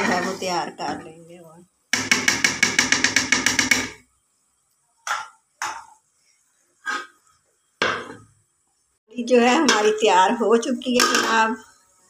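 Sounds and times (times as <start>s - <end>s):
metal ladle knocking on pot: 1.9s - 4.0s, 9.6s - 10.1s, 10.9s - 11.5s.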